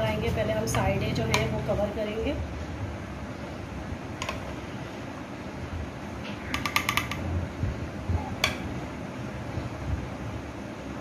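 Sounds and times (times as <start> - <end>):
steady low hum: 0.0 - 11.0
spoon clicking against dishes: 6.5 - 7.3, 8.4 - 8.6.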